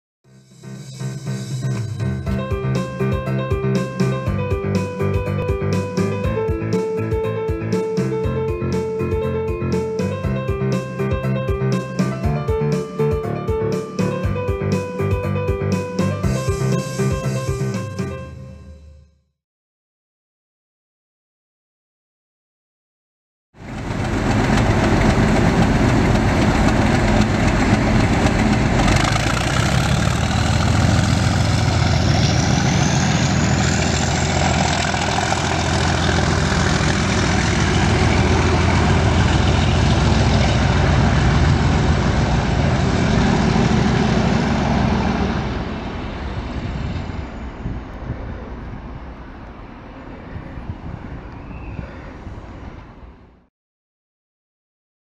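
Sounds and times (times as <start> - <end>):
diesel locomotive engine running: 1.5 - 18.1, 23.6 - 50.2
high engine whine: 23.6 - 50.3.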